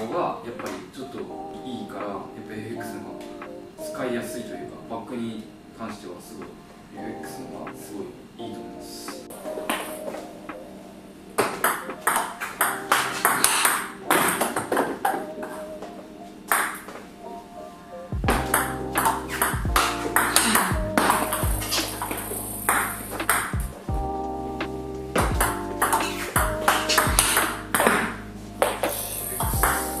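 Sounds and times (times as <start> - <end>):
background music: 0.0 - 30.0
bass line: 18.2 - 30.0.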